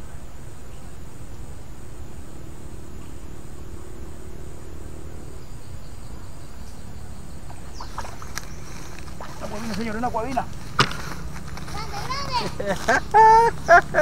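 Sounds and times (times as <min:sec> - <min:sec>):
insect high pulsing trill: 0:00.0 - 0:14.0
steady low rumble: 0:00.0 - 0:14.0
sharp clicks and rustles: 0:07.5 - 0:13.0.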